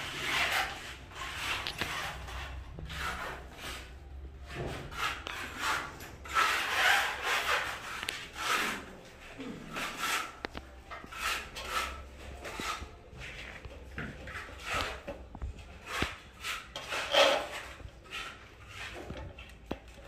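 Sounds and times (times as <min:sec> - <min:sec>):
wooden boards scraping and rubbing: 0:00.0 - 0:09.0.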